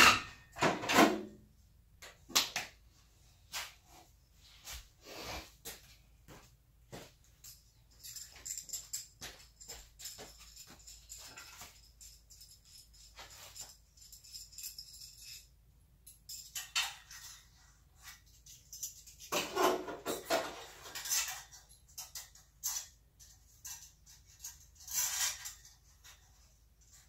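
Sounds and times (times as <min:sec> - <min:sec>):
metal tools clinking and rattling: 0:07.3 - 0:27.0.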